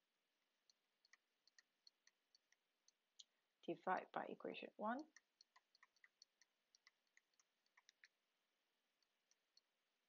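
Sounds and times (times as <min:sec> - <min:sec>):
stylus tapping on tablet screen: 0:00.6 - 0:03.2, 0:05.0 - 0:08.2, 0:08.9 - 0:09.8.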